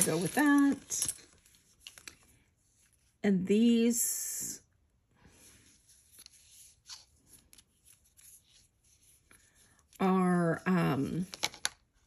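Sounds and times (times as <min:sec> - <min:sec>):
jewelry rustling and clicking: 0:00.0 - 0:03.0, 0:11.0 - 0:12.0.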